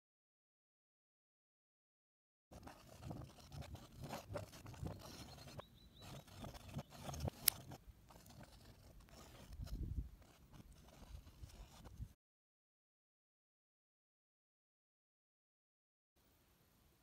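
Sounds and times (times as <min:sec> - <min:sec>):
paint stirring wet scraping: 0:02.5 - 0:12.0.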